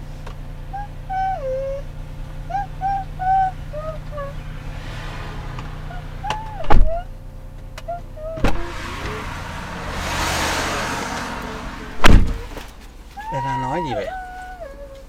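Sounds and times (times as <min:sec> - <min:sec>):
low hum inside car: 0:00.0 - 0:15.0
loud sharp knocks: 0:12.0 - 0:12.7.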